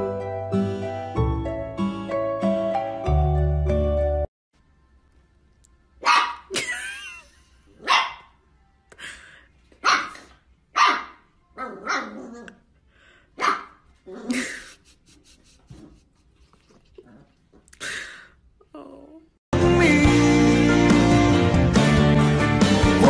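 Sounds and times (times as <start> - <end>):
puppy barking: 6.0 - 6.6, 7.8 - 8.4, 9.8 - 12.4, 13.4 - 13.8.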